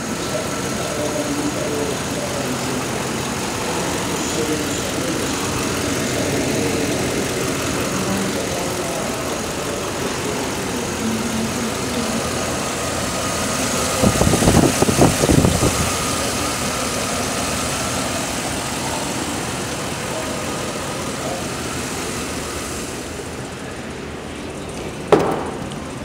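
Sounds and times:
uneven engine thumping: 0.0s - 18.6s, 24.7s - 26.0s
engine idling: 0.0s - 26.0s.

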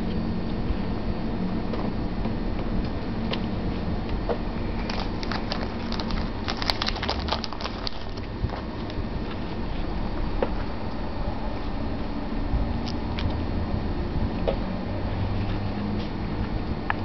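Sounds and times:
steady low hum: 0.0s - 17.0s
cat eating clicks and crackles: 4.8s - 9.0s.

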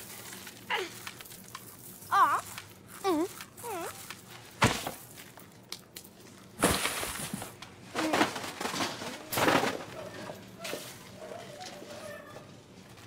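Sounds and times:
packages crashing into wire cart: 6.6s - 11.1s.

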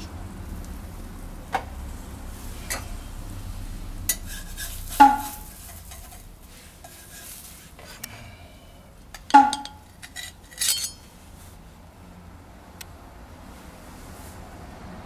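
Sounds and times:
spatula knocking and sliding on griddle: 4.1s - 8.0s
loud ringing metal clank: 8.2s - 11.1s.

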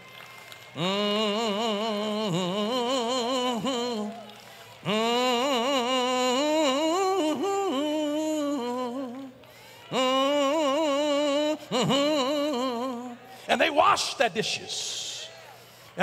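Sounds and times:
man humming slow tune: 4.8s - 13.2s.

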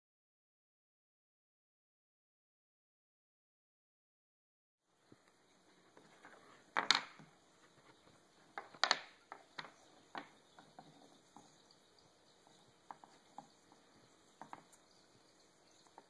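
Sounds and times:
wooden pieces clacking: 6.0s - 11.6s, 14.4s - 14.8s.

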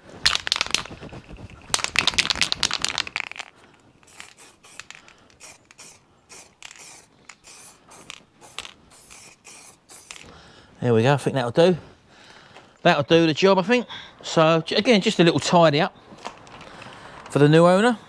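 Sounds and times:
spray can ball rattling: 0.2s - 10.3s
short spray bursts: 4.0s - 10.3s.

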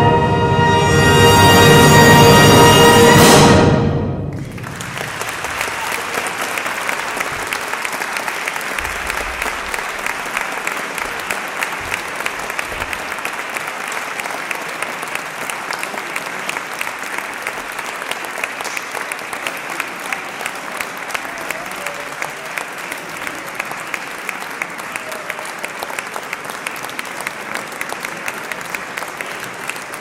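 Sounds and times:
wind band chord: 0.0s - 4.4s
audience applauding: 4.3s - 30.0s.

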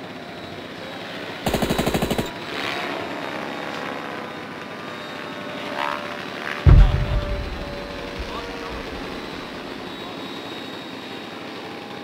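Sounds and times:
machine-gun fire: 1.5s - 2.4s, 6.7s - 9.6s
steady background hum: 6.6s - 9.8s.

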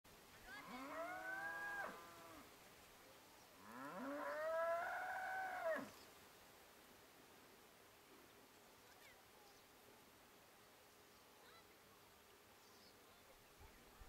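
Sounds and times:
cow mooing: 0.6s - 2.4s, 3.6s - 5.9s.

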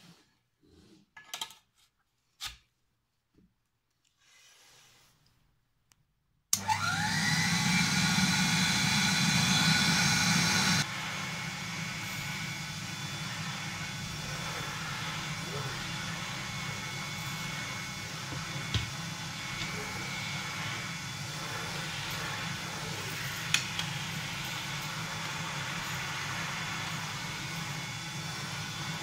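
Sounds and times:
vacuum cleaner motor whining: 6.5s - 29.0s.

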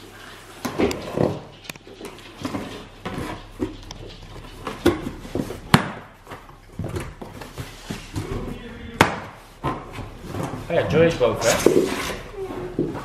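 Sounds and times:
cardboard rustling: 1.3s - 13.0s.

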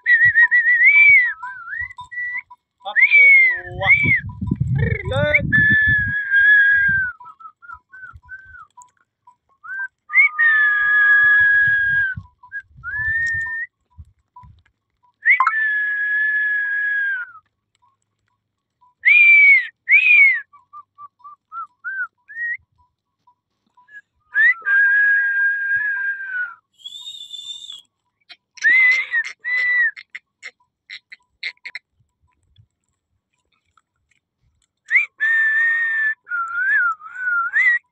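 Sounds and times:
person whistling: 0.0s - 8.8s, 9.6s - 13.7s, 15.2s - 17.4s, 19.0s - 22.6s, 23.8s - 27.9s, 34.9s - 37.9s.

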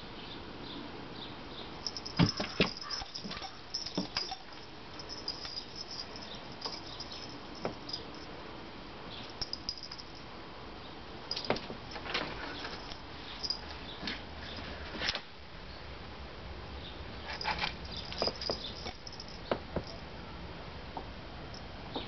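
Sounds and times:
cat paws scraping screen door: 2.0s - 8.0s.

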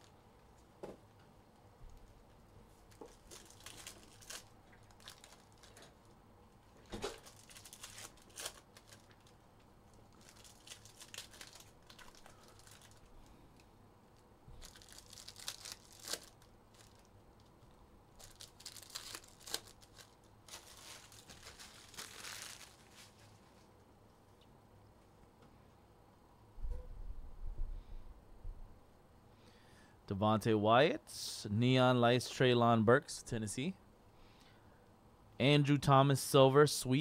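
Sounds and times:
card pack wrappers tearing: 3.0s - 5.9s, 6.9s - 13.1s, 14.6s - 17.5s, 18.2s - 23.3s.

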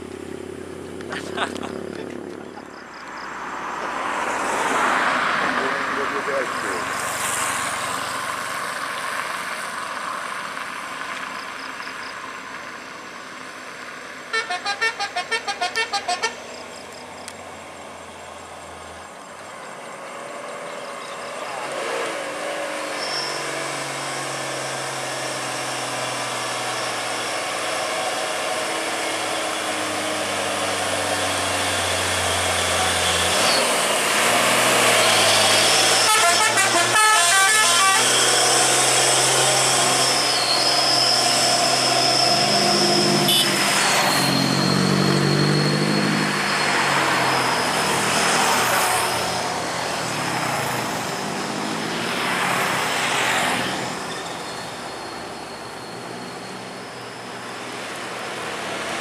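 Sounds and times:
truck diesel engine passing: 0.0s - 59.0s
vehicle horn: 14.3s - 16.5s, 36.0s - 38.4s, 43.2s - 43.8s.

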